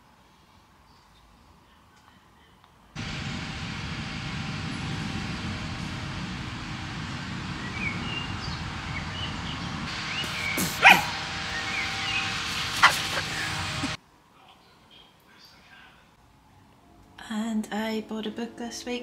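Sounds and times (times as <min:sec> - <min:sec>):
low rumble: 0:03.0 - 0:14.0
loud bird call: 0:06.6 - 0:14.0
bird chirps: 0:07.6 - 0:13.6.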